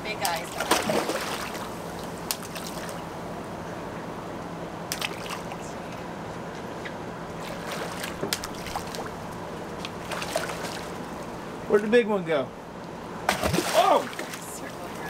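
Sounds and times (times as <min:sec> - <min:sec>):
steady low hum: 0:00.0 - 0:15.0
water sloshing and lapping: 0:00.1 - 0:03.0, 0:04.9 - 0:06.0, 0:06.8 - 0:11.5, 0:13.3 - 0:15.0
fish splashing in water: 0:00.5 - 0:03.0, 0:04.9 - 0:05.6, 0:07.4 - 0:09.2, 0:09.8 - 0:11.3, 0:13.3 - 0:14.9.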